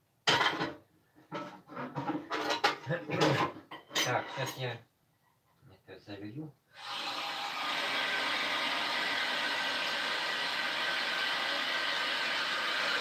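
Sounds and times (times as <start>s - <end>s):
tap water running into pot: 6.8s - 13.0s.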